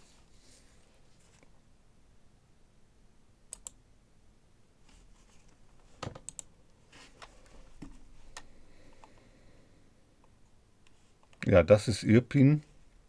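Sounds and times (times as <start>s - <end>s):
computer mouse clicking: 3.5s - 3.8s, 6.0s - 6.5s.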